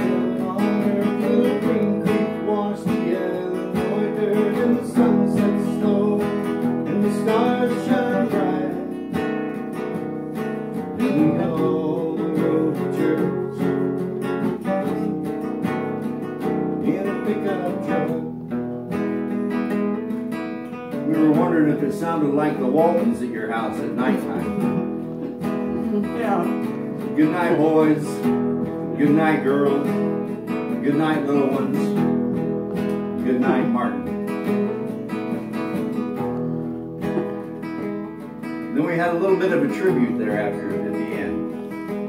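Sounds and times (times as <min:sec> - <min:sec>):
acoustic guitar strumming chords: 0:00.0 - 0:42.0.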